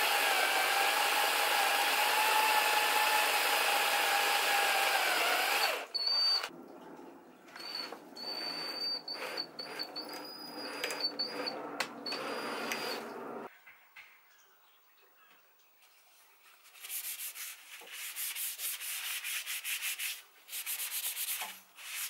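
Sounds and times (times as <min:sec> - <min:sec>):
high drill bit whine: 0:00.0 - 0:06.5, 0:07.6 - 0:13.2
power drill boring into wood: 0:00.0 - 0:06.5, 0:08.2 - 0:13.1.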